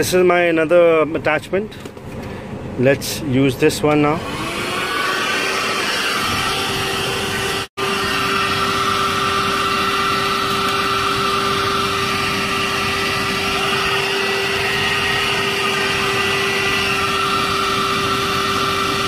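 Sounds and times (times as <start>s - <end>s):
handheld vacuum cleaner humming: 4.2s - 19.0s.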